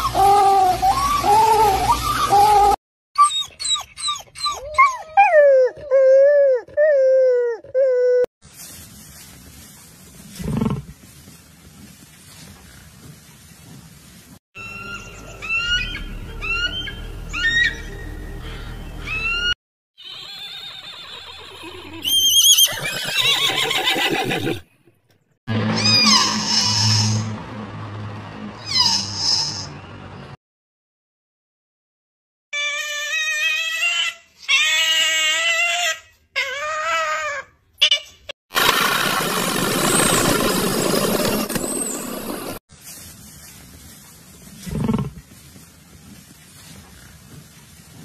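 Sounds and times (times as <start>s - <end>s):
animal call with falling notes: 0.0s - 8.2s, 14.6s - 23.7s
wolf yipping: 0.8s - 7.8s, 14.9s - 18.0s.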